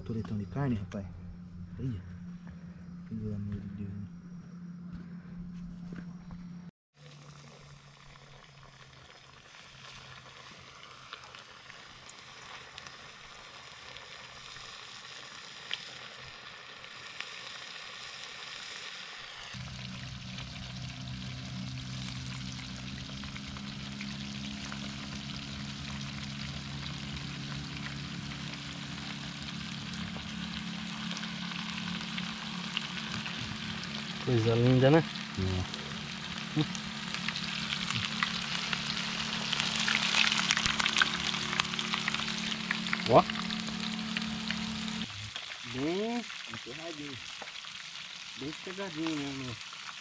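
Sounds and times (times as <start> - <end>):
low steady hum: 0.0 - 9.2, 19.5 - 46.9
fish frying in hot oil: 7.0 - 50.0.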